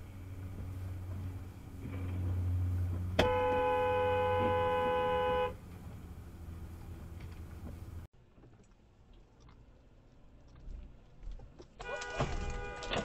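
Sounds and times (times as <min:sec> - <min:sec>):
car horn blast: 0:03.2 - 0:05.6, 0:11.8 - 0:13.0.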